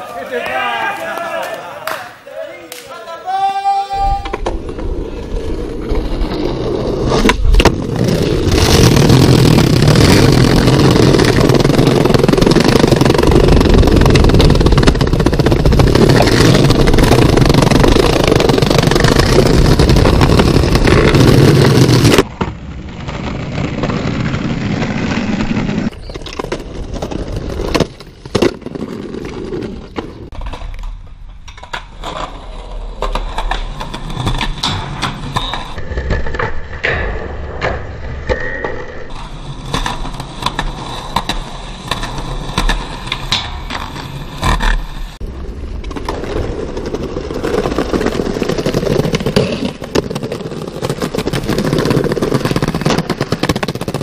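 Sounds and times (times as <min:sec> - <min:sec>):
skateboard wheels rolling on pavement: 0:03.4 - 0:54.0
skateboard clacking on ground: 0:25.8 - 0:54.0.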